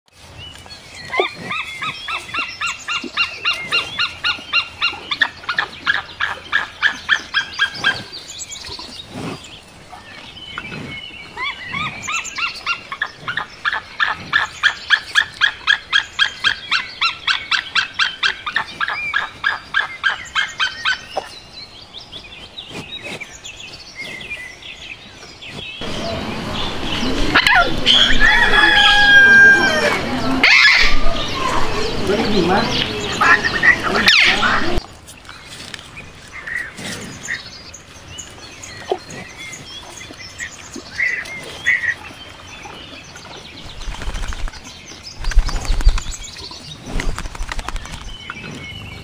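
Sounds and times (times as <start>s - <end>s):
eagle yelping calls: 27.3s - 32.0s, 32.6s - 34.8s.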